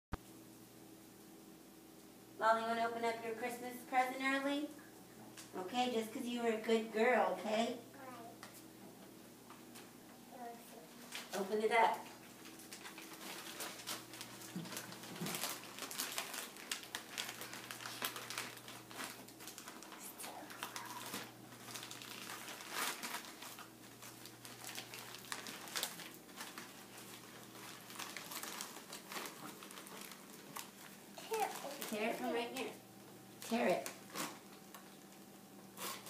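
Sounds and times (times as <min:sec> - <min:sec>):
wrapping paper crinkling: 0:11.0 - 0:36.0.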